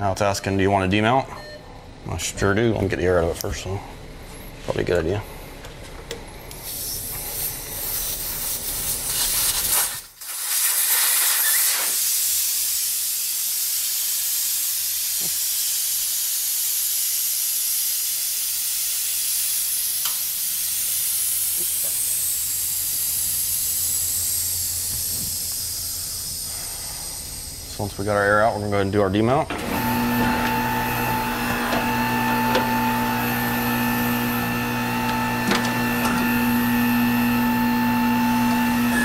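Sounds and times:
air hissing from tire valve: 6.5s - 29.2s.

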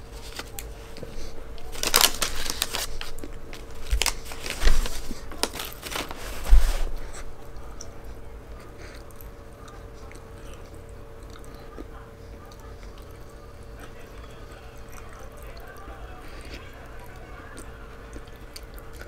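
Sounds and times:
paper wrapper rustling: 0.0s - 8.2s
person chewing food: 0.0s - 19.0s.

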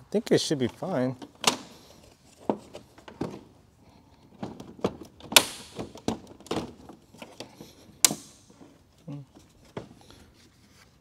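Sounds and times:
plastic bumper clicking and knocking: 4.4s - 8.4s
sharp crack: 5.4s - 5.8s.

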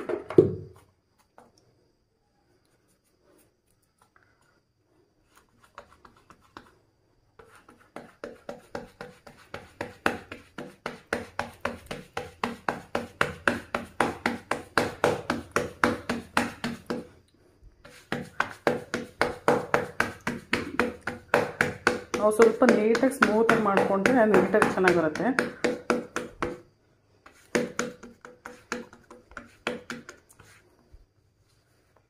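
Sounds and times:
fingers patting dough: 5.5s - 6.8s, 7.4s - 17.2s, 17.8s - 30.6s.

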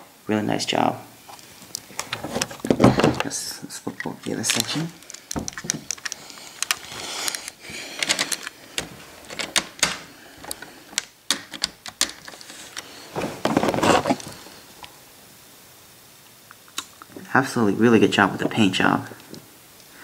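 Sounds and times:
plastic rubbing: 1.3s - 14.9s
plastic clicks and knocks: 4.5s - 6.8s.

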